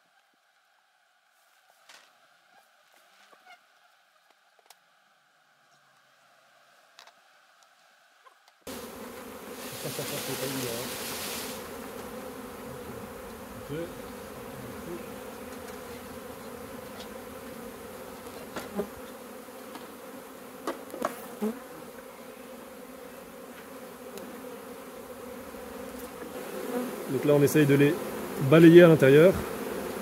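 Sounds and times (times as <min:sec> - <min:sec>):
bees buzzing: 0:06.2 - 0:30.0.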